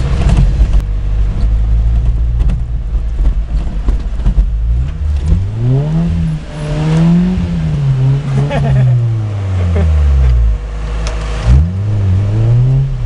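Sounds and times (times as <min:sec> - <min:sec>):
knocks and rattles: 0:00.0 - 0:05.9
car engine revving: 0:00.0 - 0:13.0.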